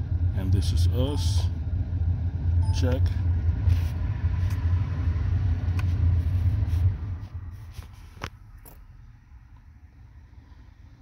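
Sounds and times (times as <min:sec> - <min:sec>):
low machine rumble: 0:00.0 - 0:11.0.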